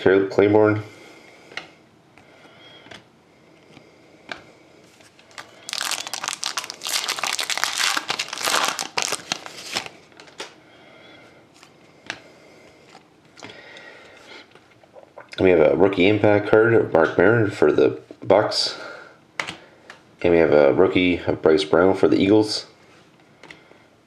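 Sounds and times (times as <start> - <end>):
foil wrapper crinkling: 5.0 - 10.6.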